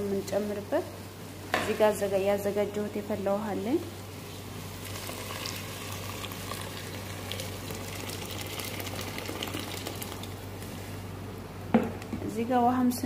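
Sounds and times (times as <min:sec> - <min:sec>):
rice bubbling and sizzling: 0:00.0 - 0:11.6
water pouring into hot pot: 0:04.8 - 0:10.4.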